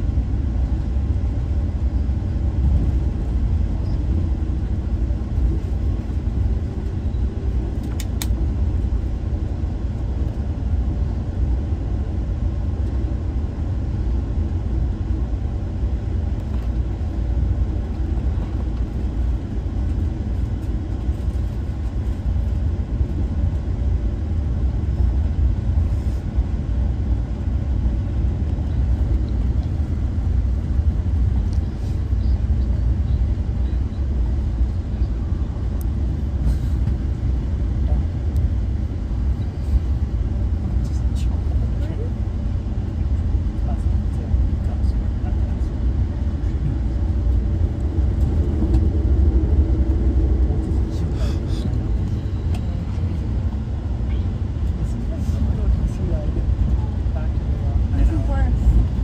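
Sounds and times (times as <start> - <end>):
train rumbling: 0.0 - 59.0.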